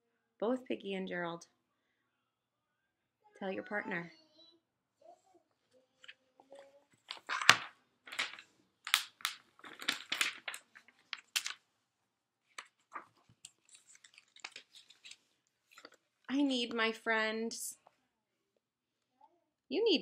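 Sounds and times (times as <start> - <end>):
paper pages rustling: 6.0 - 11.6, 12.5 - 16.1.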